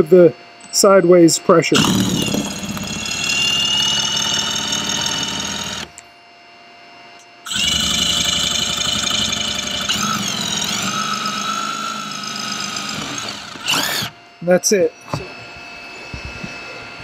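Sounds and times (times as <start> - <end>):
power drill drilling into plastic: 1.8 - 6.0, 7.5 - 14.2.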